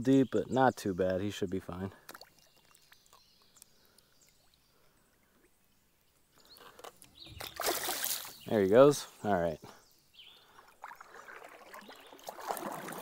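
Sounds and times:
faint drips and ticks: 0:01.8 - 0:04.6
water splashing and sloshing: 0:01.9 - 0:05.5, 0:06.6 - 0:08.5, 0:10.4 - 0:13.0.

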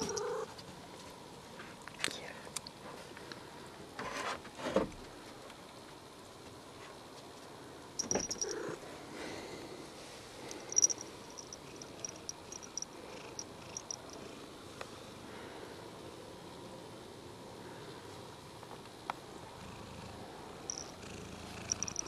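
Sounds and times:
cat purring: 0:00.0 - 0:00.5, 0:08.0 - 0:08.9, 0:10.5 - 0:14.5, 0:19.4 - 0:22.0
faint high ticks: 0:10.5 - 0:14.2, 0:20.7 - 0:21.0, 0:21.6 - 0:22.0.

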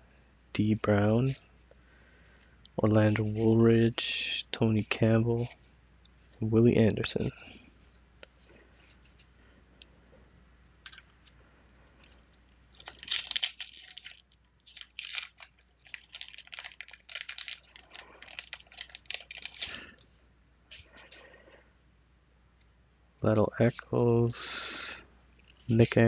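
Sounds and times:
wrapper being torn and crinkled: 0:12.1 - 0:20.0.

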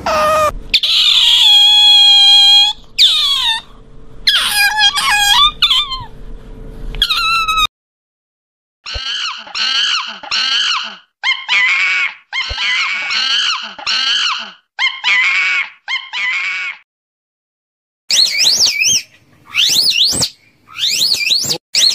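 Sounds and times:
young macaques calling: 0:00.0 - 0:03.7, 0:04.3 - 0:06.1, 0:08.9 - 0:16.8, 0:18.1 - 0:21.9
otters squeaking shrilly: 0:00.0 - 0:06.1, 0:07.0 - 0:07.7, 0:08.9 - 0:16.8, 0:18.1 - 0:21.9.

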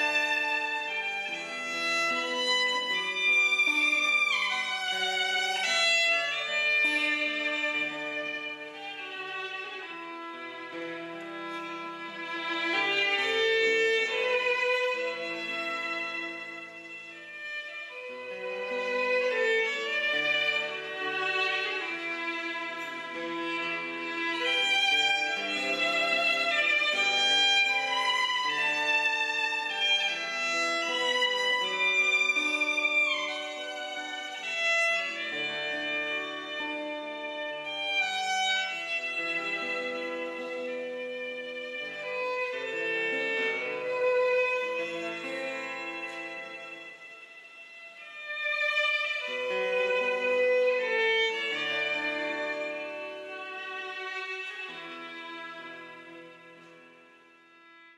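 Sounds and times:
slow fiddle music: 0:00.0 - 0:57.9
slow violin melody: 0:00.0 - 0:57.9.

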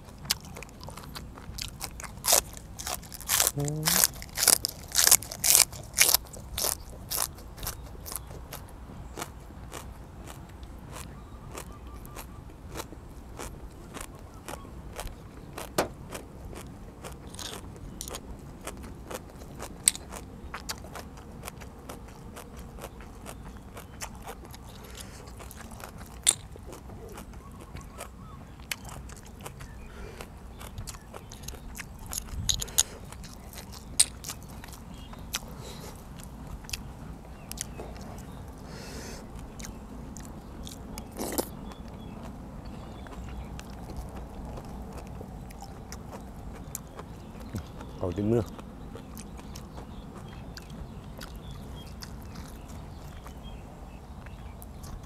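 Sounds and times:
person chewing and crunching food: 0:00.0 - 0:55.0.

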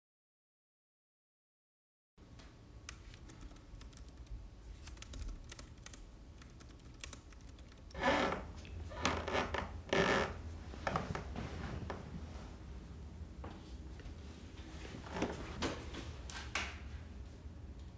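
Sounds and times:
typing on laptop keyboard: 0:02.9 - 0:08.0.

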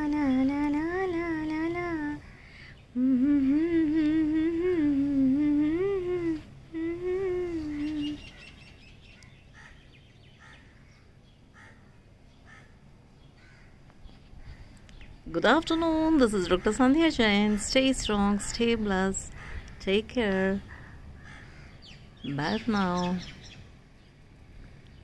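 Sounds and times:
woman humming a tune: 0:00.0 - 0:02.3, 0:02.9 - 0:08.4.

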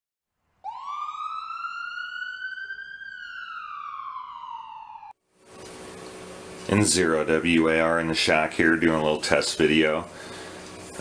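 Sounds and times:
siren wail: 0:00.6 - 0:05.2.

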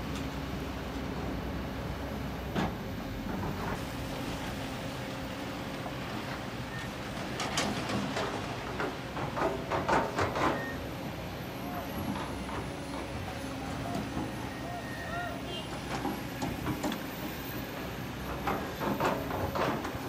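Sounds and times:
excavator diesel engines running: 0:00.0 - 0:20.0
knocks and clatters: 0:07.4 - 0:10.7.

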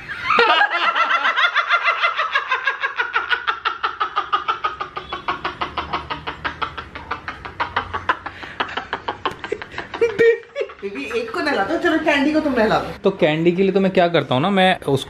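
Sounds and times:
people laughing hard: 0:00.0 - 0:11.6.

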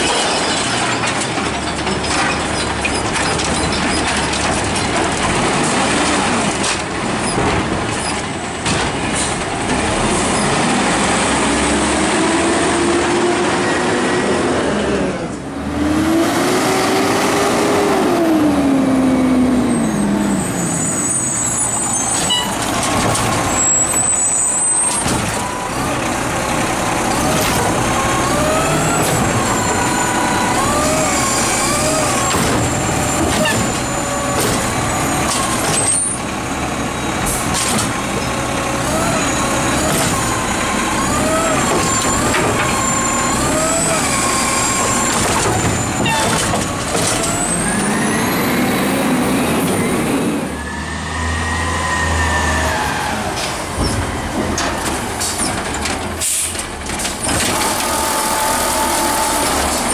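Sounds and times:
garbage truck engine revving: 0:00.0 - 0:59.9
hydraulic whine: 0:56.2 - 0:59.9.

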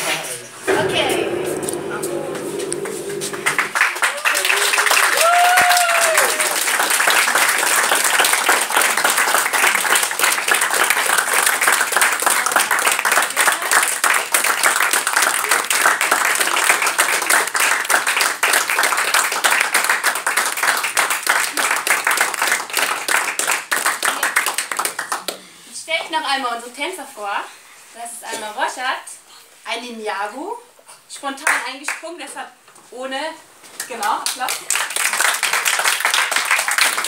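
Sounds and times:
audience applauding: 0:03.5 - 0:25.4, 0:34.4 - 0:37.0.

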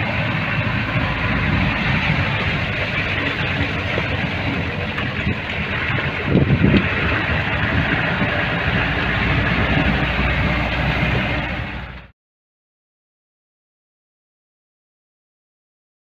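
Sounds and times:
engine and road rumble: 0:00.0 - 0:12.1
heavy vehicle jolts: 0:00.0 - 0:12.1
vehicle body rattling: 0:00.0 - 0:12.1.

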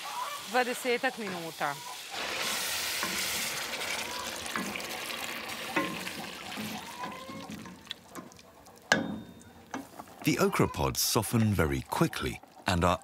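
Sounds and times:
water sizzling in hot pot: 0:00.0 - 0:12.7
wooden spoon stirring liquid: 0:02.4 - 0:10.5.

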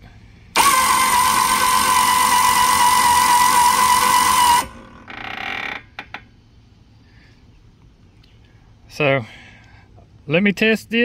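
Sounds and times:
electric winch motor whining: 0:00.5 - 0:05.8.

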